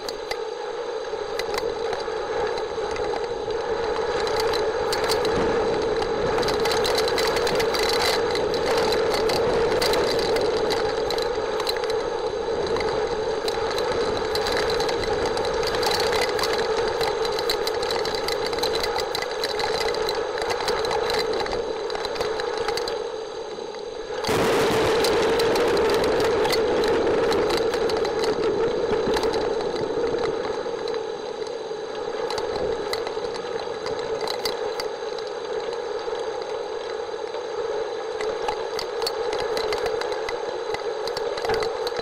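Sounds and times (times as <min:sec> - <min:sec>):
low drone: 0:00.0 - 0:35.4
heavy rain falling: 0:24.2 - 0:30.9.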